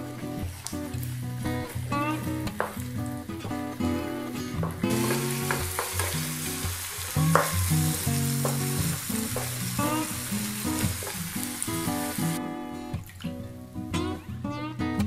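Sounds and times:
background music: 0.0 - 15.0
eggs sizzling in a frying pan: 0.2 - 4.0, 4.8 - 12.4.

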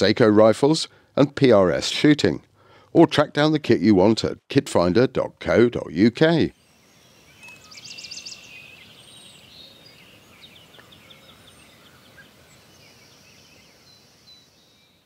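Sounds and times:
faint outdoor background noise: 0.0 - 15.0
small birds chirping: 5.8 - 15.0.

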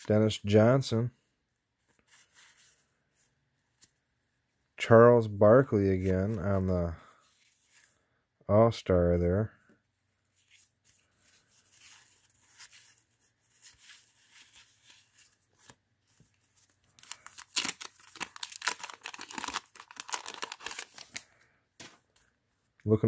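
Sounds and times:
paper pack rustling and tearing: 16.4 - 22.0.

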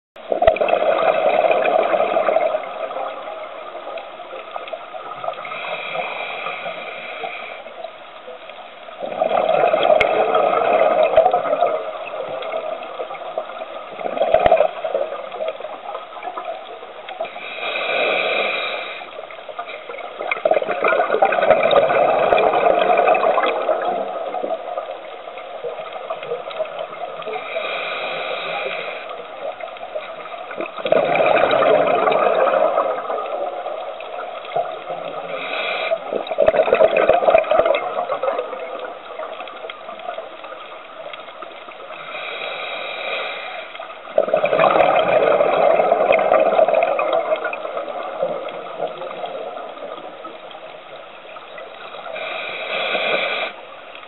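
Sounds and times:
exhaled bubbles underwater: 0.2 - 54.0
regulator inhalation hiss: 5.3 - 7.9, 17.3 - 20.0, 27.3 - 29.4, 35.2 - 36.1, 41.8 - 43.9, 51.9 - 53.7.

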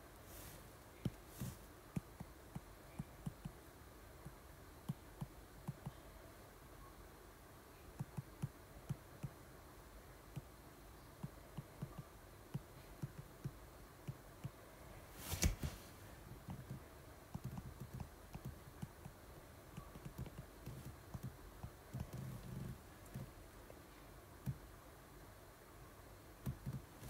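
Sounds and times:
stylus tapping on tablet screen: 1.0 - 3.6, 8.0 - 9.4, 11.2 - 14.6, 16.4 - 19.2, 19.8 - 23.3.

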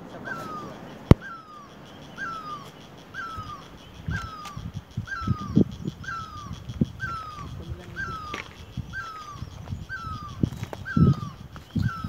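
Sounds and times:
bird calling shrill notes: 0.0 - 12.0
sharp click: 4.1 - 4.7.

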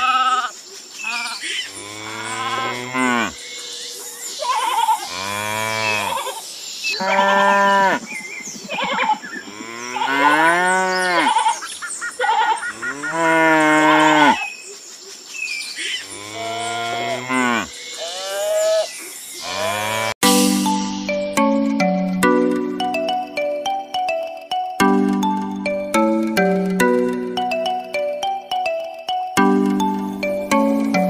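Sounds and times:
cattle mooing: 5.1 - 6.2, 12.8 - 14.4, 16.2 - 20.2.

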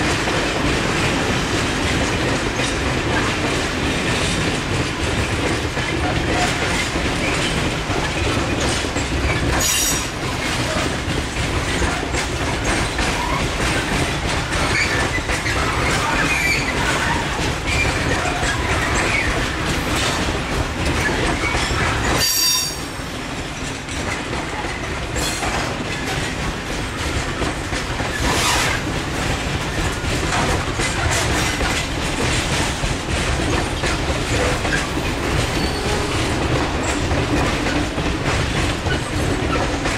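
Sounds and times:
train wheels rolling on track: 0.0 - 39.9
high-pitched wheel squeals: 21.6 - 22.9, 35.5 - 36.1.

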